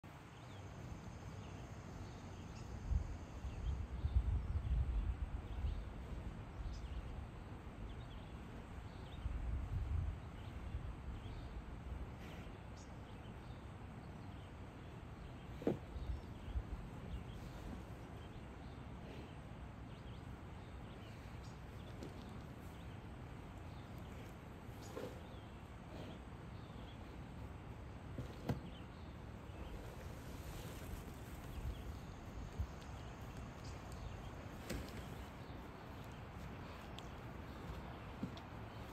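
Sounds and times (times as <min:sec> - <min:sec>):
faint insect ticks: 0:31.5 - 0:35.1, 0:35.9 - 0:38.8
bird ticks: 0:35.9 - 0:38.9.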